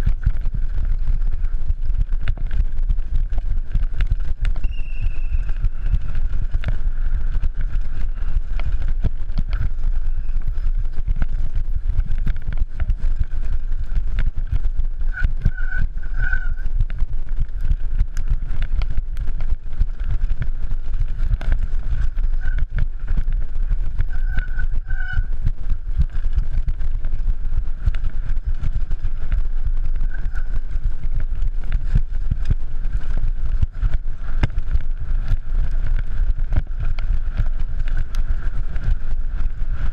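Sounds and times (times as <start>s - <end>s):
bike rattling and knocking: 0.0s - 39.9s
wind rumble on microphone: 0.0s - 39.9s
short high squeaks: 24.1s - 25.3s.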